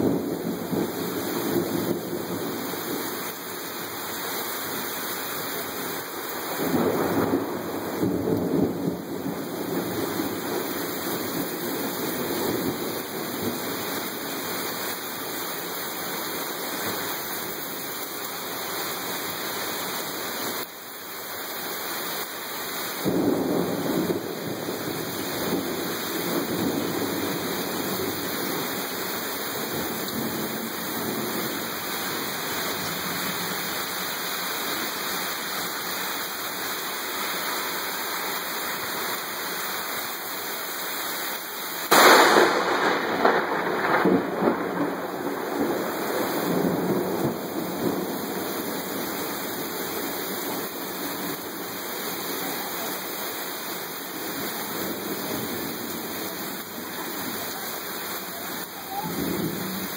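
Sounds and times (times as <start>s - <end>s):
heavy rain: 0.0s - 59.9s
thunder rumbling: 6.5s - 14.2s, 23.0s - 33.9s, 41.9s - 53.1s.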